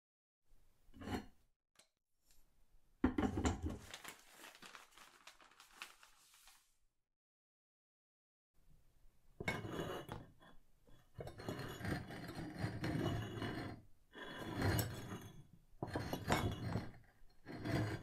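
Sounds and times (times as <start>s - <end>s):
stone scraping on hard floor: 9.5s - 10.4s, 11.2s - 16.9s.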